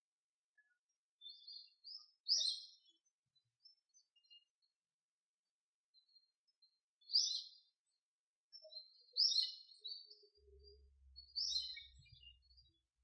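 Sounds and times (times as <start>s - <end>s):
small bird chirping: 0.6s - 3.0s, 8.6s - 12.8s.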